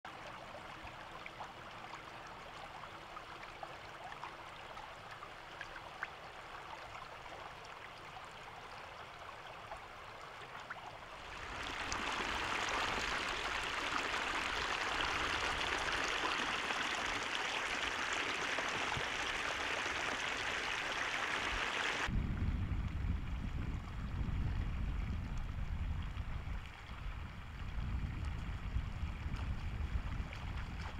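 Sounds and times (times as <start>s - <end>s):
water trickling through fence: 0.1s - 22.1s
muddy water pouring: 11.2s - 22.1s.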